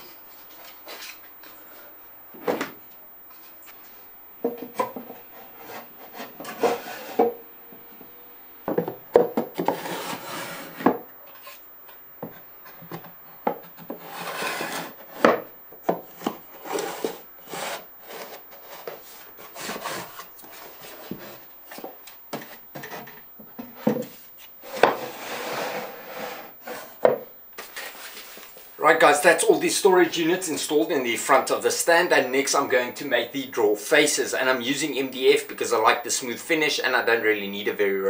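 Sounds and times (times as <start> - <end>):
wood sliding against wood: 9.6 - 11.6, 13.9 - 15.4, 16.2 - 27.1.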